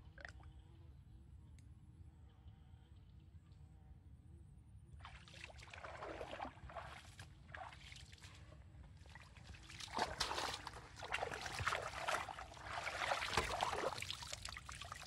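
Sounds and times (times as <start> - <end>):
water splashing and sloshing: 5.0 - 15.0.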